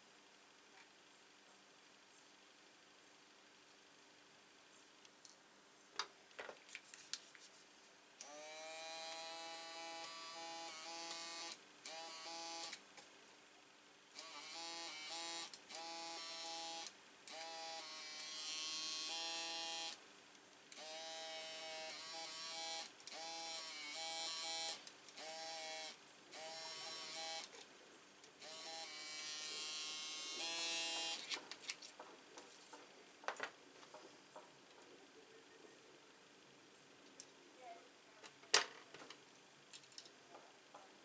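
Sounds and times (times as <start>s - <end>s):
electric motor tool whining: 8.2s - 12.8s, 14.2s - 20.0s, 20.7s - 27.5s, 28.4s - 31.4s.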